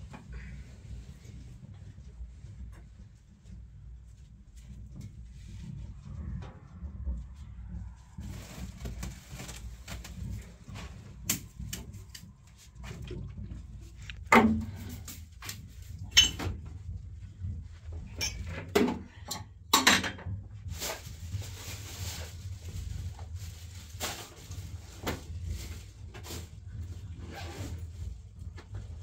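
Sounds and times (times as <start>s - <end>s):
low steady rumble: 0.0s - 29.0s
household things knocking and clattering: 8.2s - 21.1s
hand broom sweeping floor: 20.7s - 26.7s.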